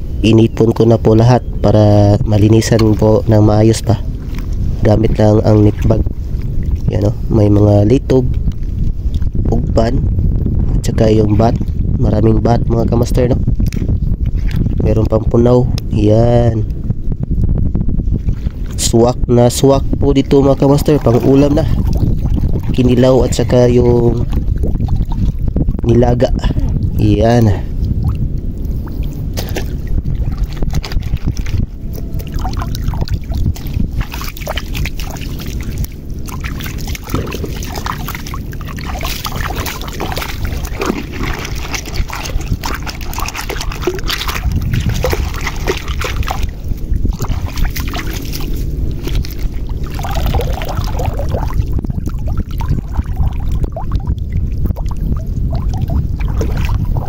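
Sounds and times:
low rumble: 0:00.0 - 0:57.0
net bag sloshing in water: 0:32.2 - 0:53.9.

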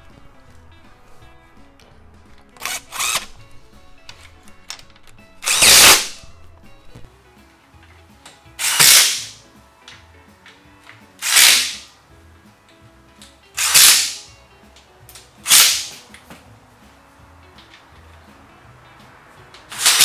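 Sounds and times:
cordless driver spinning bolts: 0:02.4 - 0:03.5, 0:04.1 - 0:06.3, 0:08.6 - 0:09.3, 0:11.2 - 0:11.8, 0:13.6 - 0:14.2, 0:15.5 - 0:15.9, 0:19.7 - 0:20.0.

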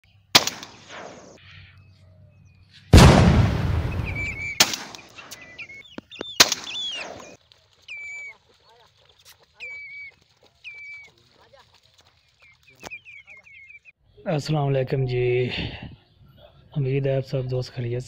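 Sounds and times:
shotgun shots: 0:00.3 - 0:01.4, 0:02.9 - 0:05.6, 0:06.4 - 0:07.4
whistled bird calls: 0:03.8 - 0:11.4, 0:12.1 - 0:14.0.

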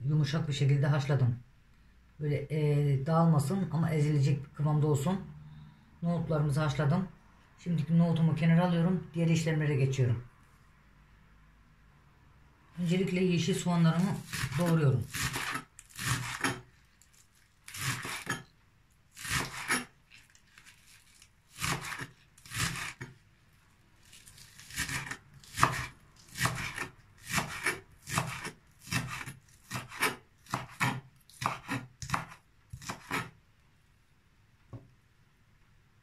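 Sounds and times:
knife chopping on wooden board: 0:14.1 - 0:16.7, 0:17.7 - 0:18.4, 0:19.2 - 0:19.9, 0:21.5 - 0:23.2, 0:24.2 - 0:33.4.

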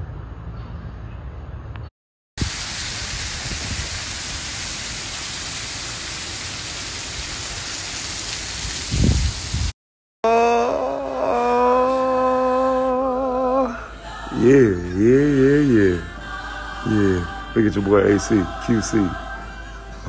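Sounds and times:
steady hiss: 0:02.4 - 0:09.7.

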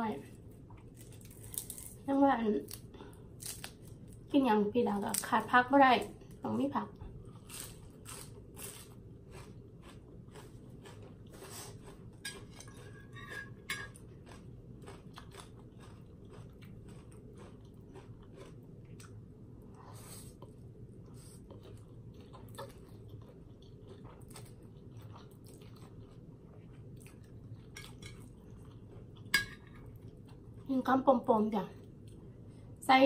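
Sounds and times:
low steady background hum: 0:00.0 - 0:33.0
chewing with wet mouth clicks: 0:14.2 - 0:19.2, 0:21.5 - 0:30.6.

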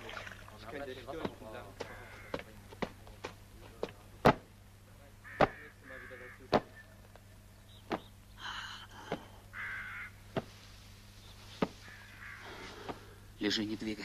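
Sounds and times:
stick beating quilt: 0:01.2 - 0:04.5, 0:05.4 - 0:05.6, 0:10.3 - 0:10.6, 0:11.6 - 0:11.8
crows cawing: 0:01.5 - 0:02.6, 0:05.2 - 0:06.9, 0:07.9 - 0:10.5, 0:11.6 - 0:13.2.

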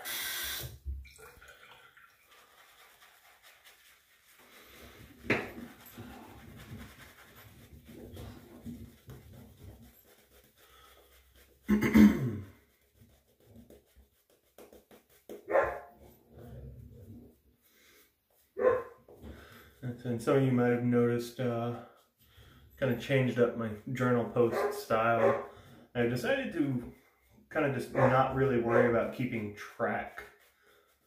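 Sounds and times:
dog barking: 0:15.5 - 0:15.9, 0:18.6 - 0:18.9, 0:24.5 - 0:25.5, 0:27.9 - 0:28.9.

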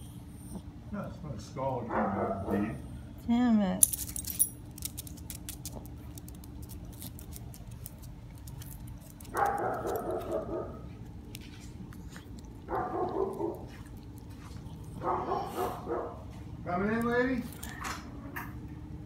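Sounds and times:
dog barking: 0:01.8 - 0:02.8, 0:09.3 - 0:10.9, 0:12.7 - 0:13.8, 0:15.0 - 0:16.3.

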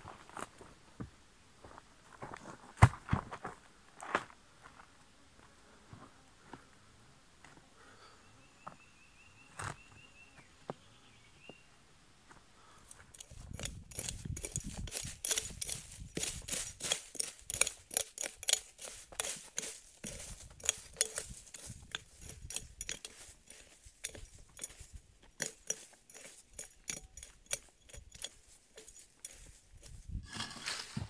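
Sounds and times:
hoe scraping through leaves and soil: 0:13.1 - 0:31.0.

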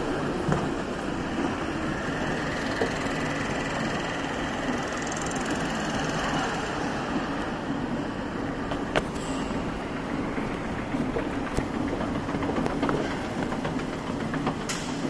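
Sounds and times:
engines idling: 0:00.0 - 0:15.0
machinery hum: 0:00.0 - 0:15.0.

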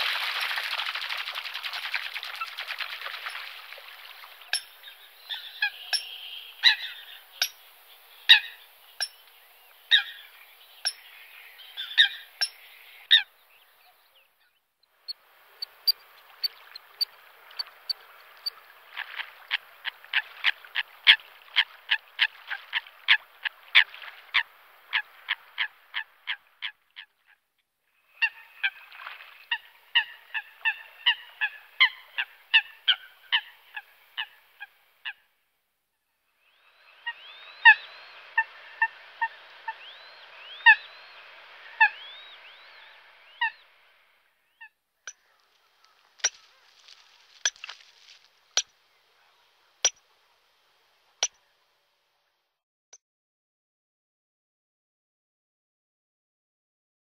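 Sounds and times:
coots honking calls: 0:04.4 - 0:07.6, 0:37.0 - 0:43.6.

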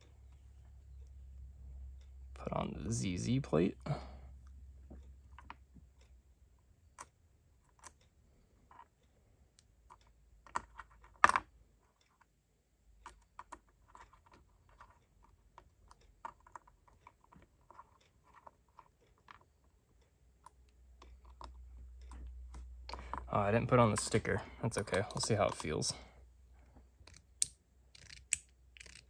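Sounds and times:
clicks of fidget parts: 0:27.0 - 0:29.0.

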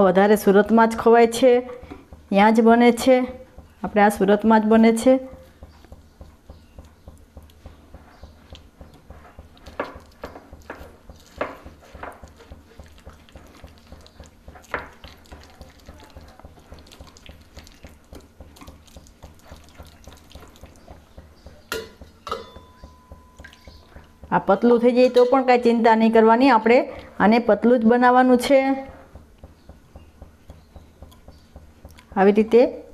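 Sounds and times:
whisk beating batter in glass bowl: 0:03.0 - 0:24.4
whisk wires clinking on glass: 0:21.7 - 0:23.8.

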